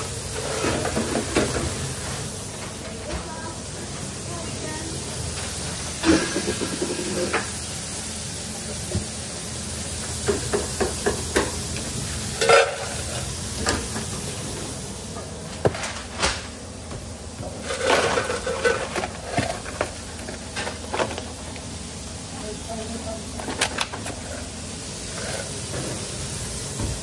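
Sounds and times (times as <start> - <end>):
fries rustling and clattering: 0.0 - 7.8, 8.7 - 27.0
kitchen equipment hum: 0.0 - 27.0
metal utensils clinking: 12.4 - 13.2.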